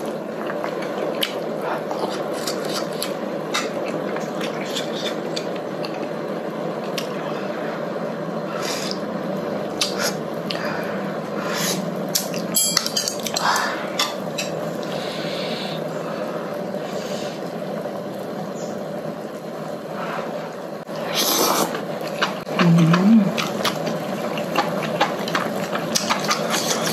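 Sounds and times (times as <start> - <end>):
chewing and wet mouth sounds: 21.1 - 26.9.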